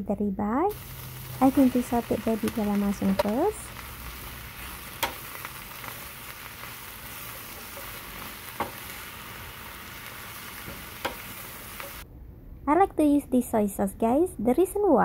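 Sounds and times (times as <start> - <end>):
mushrooms sizzling in a skillet: 0.7 - 12.0
spatula clacking against pan: 5.0 - 5.3, 8.5 - 8.9.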